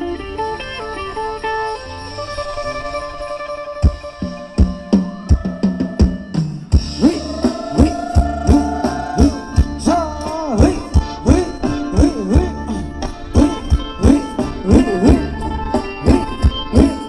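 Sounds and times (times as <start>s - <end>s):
dance band playing: 0.0s - 17.0s
fast kick-drum beat: 4.6s - 9.9s.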